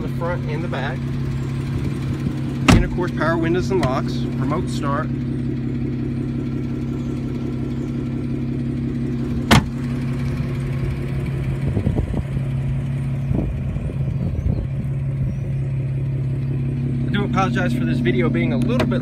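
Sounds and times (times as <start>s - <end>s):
car engine idling: 0.0s - 19.0s
car door slamming: 2.4s - 4.1s, 9.4s - 10.0s.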